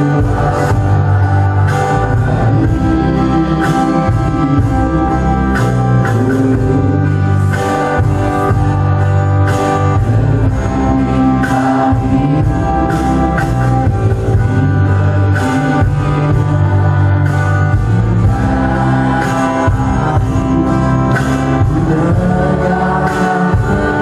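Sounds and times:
man singing pop song: 0:00.0 - 0:24.0.

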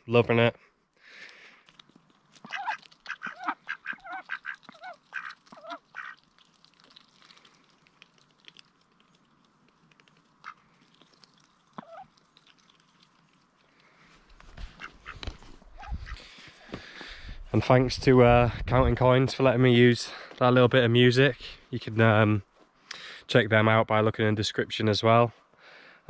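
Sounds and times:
ducks quacking: 0:02.4 - 0:06.2, 0:14.6 - 0:16.5.

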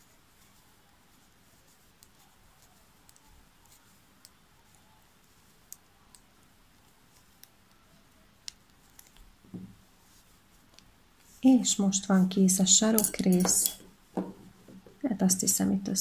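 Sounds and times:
knitting needles clicking: 0:01.9 - 0:04.5, 0:05.2 - 0:09.4
soft low thump: 0:09.5 - 0:09.8.

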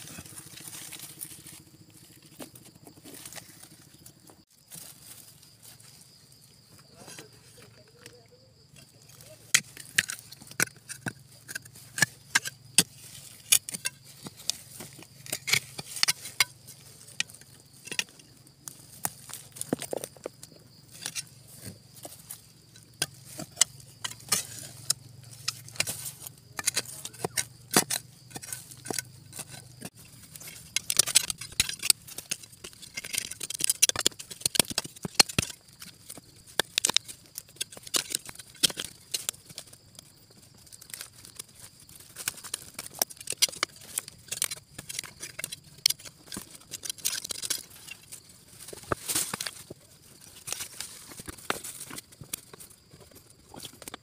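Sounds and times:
digging in dry soil: 0:00.0 - 0:54.0.

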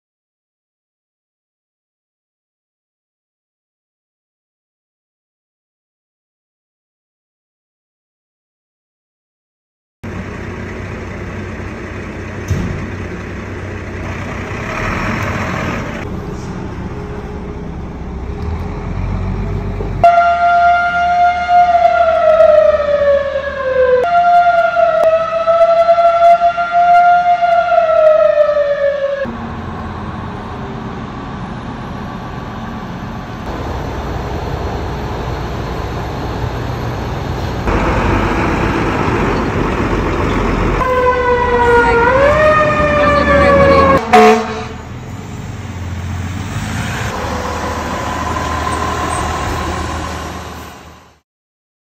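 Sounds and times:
fire truck engine rumble: 0:10.0 - 0:51.2
siren wailing: 0:20.0 - 0:29.3, 0:37.7 - 0:44.8, 0:47.0 - 0:50.6.

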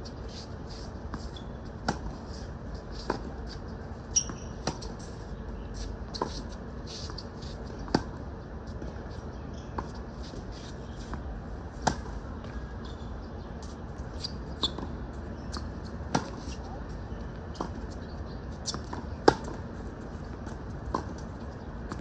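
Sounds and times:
tennis ball bounces: 0:11.8 - 0:12.2, 0:14.6 - 0:16.6, 0:18.6 - 0:19.6.

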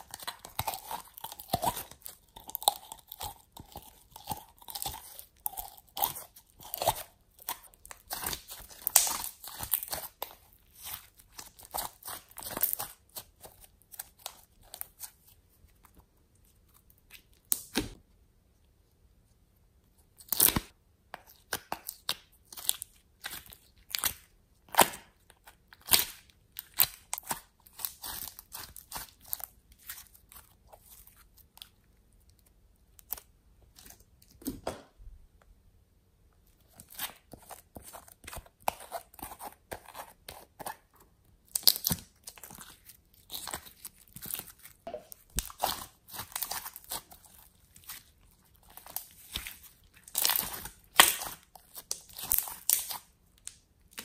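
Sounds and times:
slime clicking and popping: 0:06.9 - 0:10.3, 0:50.1 - 0:54.0.

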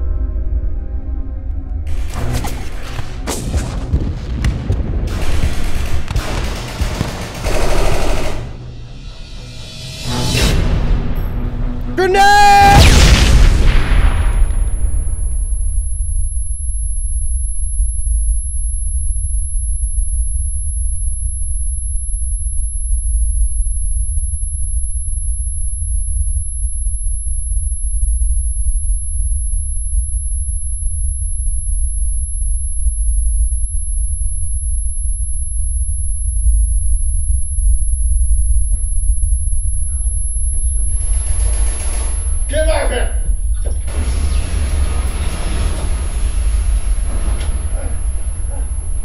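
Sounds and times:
loud low rumble: 0:00.0 - 0:06.8, 0:24.9 - 0:42.5, 0:43.1 - 0:49.0
high-pitched ear-ringing whine: 0:15.0 - 0:49.0.

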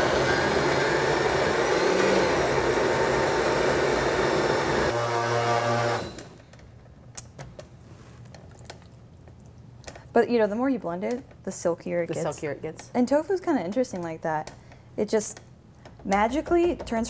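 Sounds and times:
blender running: 0:00.0 - 0:06.4.

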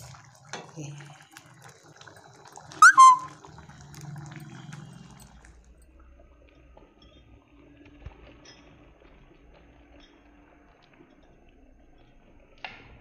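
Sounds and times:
thick liquid pouring and plopping: 0:00.0 - 0:05.5.

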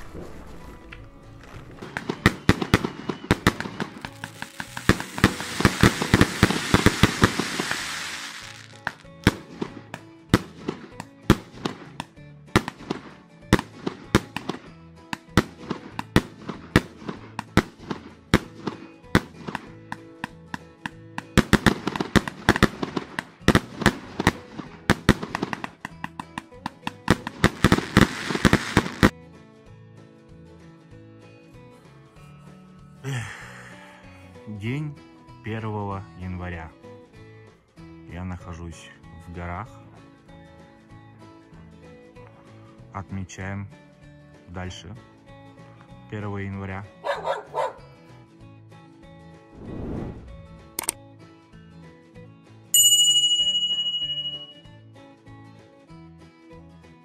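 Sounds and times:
firework crackling hiss: 0:00.0 - 0:02.2, 0:03.5 - 0:09.1, 0:27.4 - 0:29.1, 0:49.5 - 0:50.7
firework bangs and pops: 0:00.0 - 0:29.1
background music: 0:00.0 - 0:57.0.

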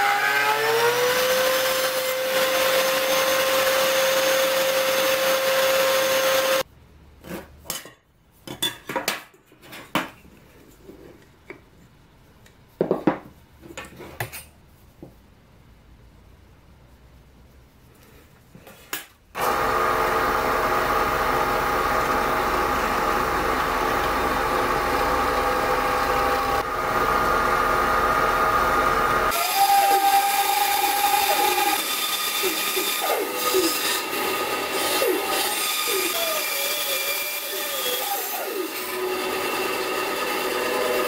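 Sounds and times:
band saw cutting wood: 0:00.0 - 0:06.6, 0:19.4 - 0:41.0
drill press running: 0:19.4 - 0:37.3.

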